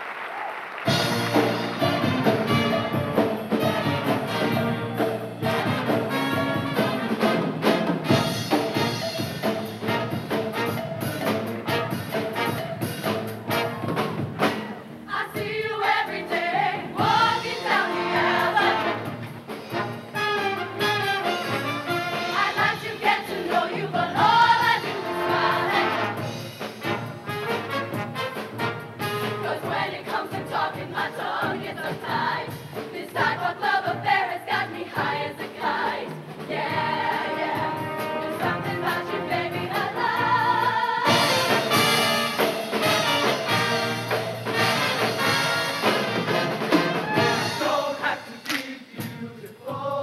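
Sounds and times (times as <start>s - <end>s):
instrumental accompaniment: 0.9s - 49.2s
choir singing: 15.1s - 19.3s, 21.6s - 26.2s, 29.2s - 50.0s.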